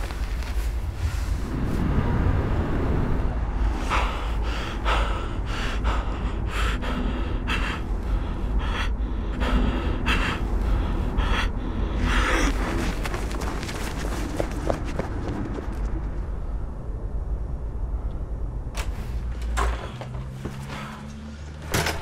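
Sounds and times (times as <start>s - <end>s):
low steady rumble: 0.0s - 19.5s
person gasping breaths: 3.6s - 14.1s.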